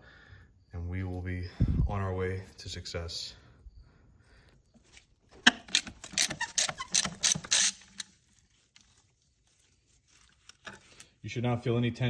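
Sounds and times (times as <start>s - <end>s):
ratchet wrench clicking: 5.4s - 8.2s.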